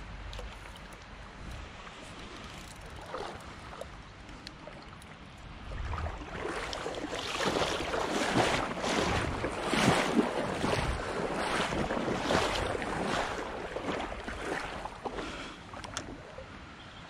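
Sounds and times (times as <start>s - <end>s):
water sloshing and splashing: 0.1s - 16.6s
wind on microphone: 5.6s - 6.8s, 7.4s - 14.8s.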